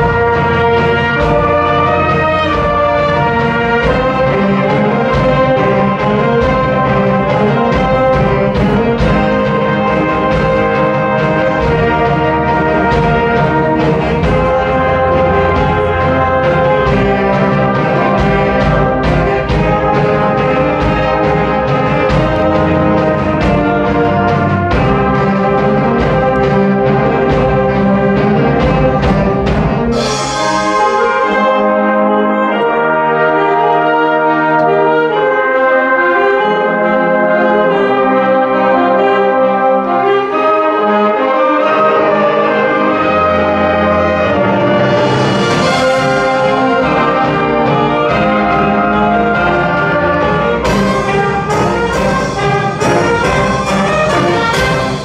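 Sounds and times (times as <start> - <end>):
sharp percussion strikes: 0.0 - 32.2, 43.9 - 55.0
wind band playing brass chords: 0.0 - 55.0.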